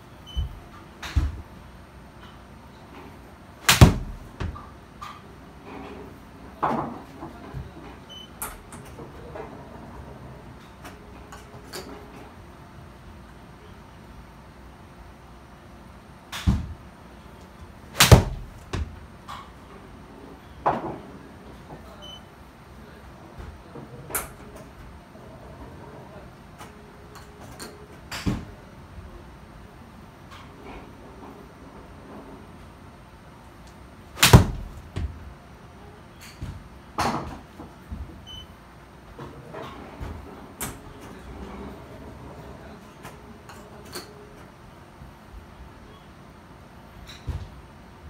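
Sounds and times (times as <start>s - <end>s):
ball hitting screen: 3.6s - 4.7s, 18.0s - 19.0s, 34.2s - 35.2s
golf club striking ball: 3.7s - 4.6s, 18.0s - 18.9s, 34.2s - 34.7s
dull thumps: 18.0s - 19.0s, 34.2s - 35.2s.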